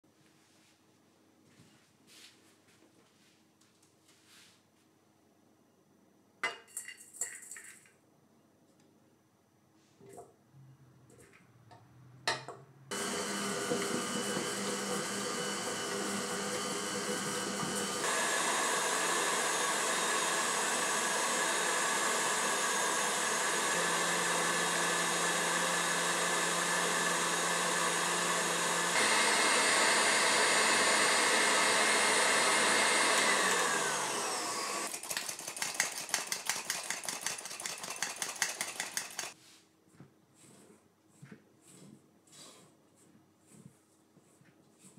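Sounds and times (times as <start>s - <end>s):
stand mixer motor running: 12.9s - 39.4s.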